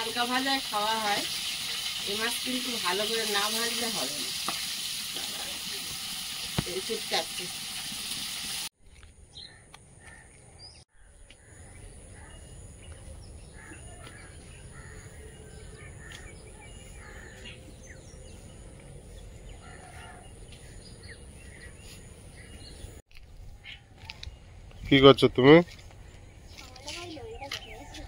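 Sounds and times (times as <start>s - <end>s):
bird chirps and calls: 9.3s - 23.0s, 25.6s - 28.0s.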